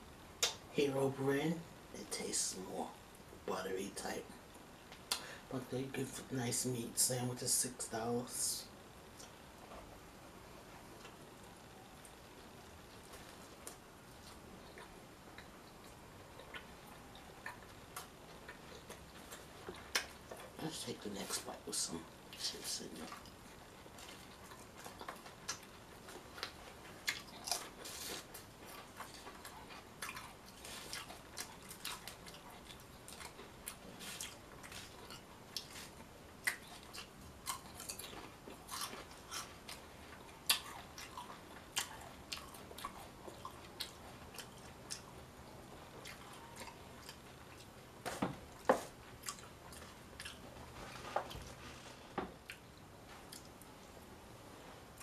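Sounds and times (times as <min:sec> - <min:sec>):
person chewing crunchy food: 0:12.0 - 0:20.6, 0:22.3 - 0:53.6.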